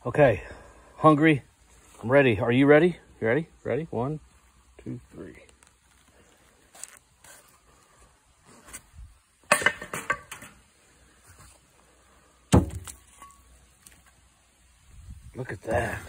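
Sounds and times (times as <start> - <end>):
skillet and board clattering on table: 9.5 - 10.6.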